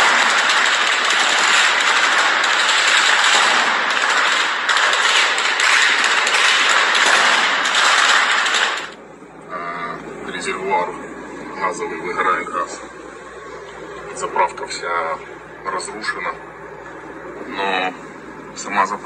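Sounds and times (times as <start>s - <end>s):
rapid gunfire: 0.0s - 9.0s.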